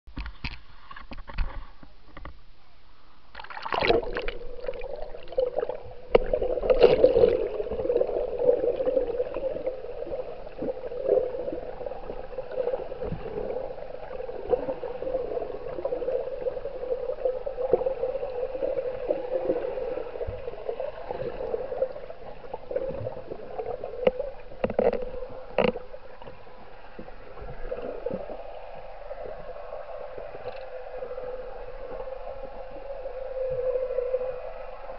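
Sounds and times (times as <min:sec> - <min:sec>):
underwater hum: 0:00.1 - 0:34.9
sloshing water: 0:03.3 - 0:31.1.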